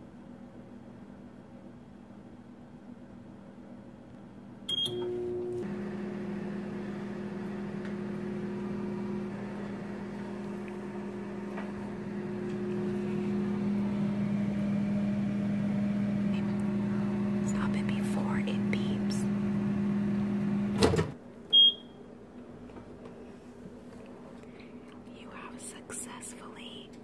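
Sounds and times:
microwave oven humming: 0:04.6 - 0:22.5
microwave keypad beep: 0:04.7 - 0:05.6, 0:21.5 - 0:22.0.

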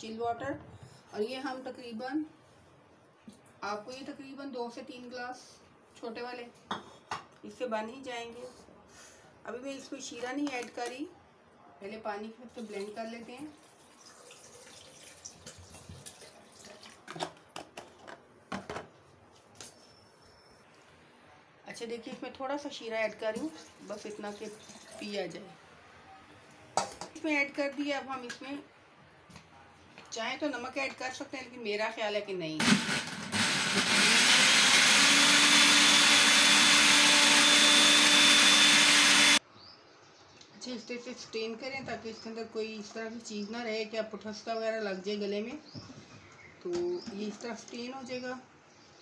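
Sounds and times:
blender running: 0:32.6 - 0:39.4.

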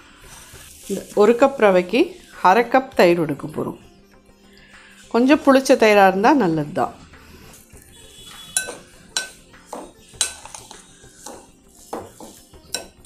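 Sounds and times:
spoon clinking against glass bowl: 0:07.8 - 0:13.0.

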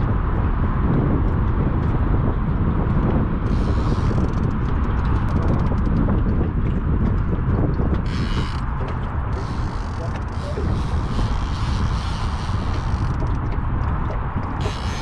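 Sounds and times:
wind buffeting microphone: 0:00.0 - 0:15.0
fishing reel clicking: 0:08.1 - 0:08.6, 0:14.6 - 0:15.0.

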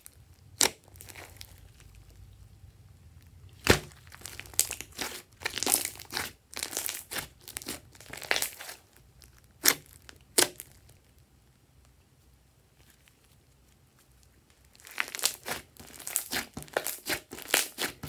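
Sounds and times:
sharp slime pops: 0:03.6 - 0:04.0
slime crackling pops: 0:03.6 - 0:08.8.

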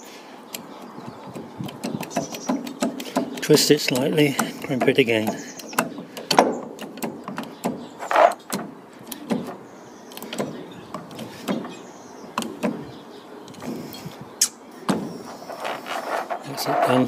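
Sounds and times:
hydraulic crimping tool clicking and creaking: 0:01.3 - 0:09.4.

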